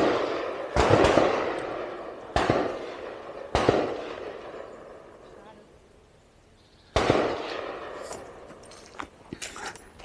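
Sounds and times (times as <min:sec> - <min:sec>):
gunshots with echoing tail: 0:00.0 - 0:05.2, 0:06.9 - 0:08.4.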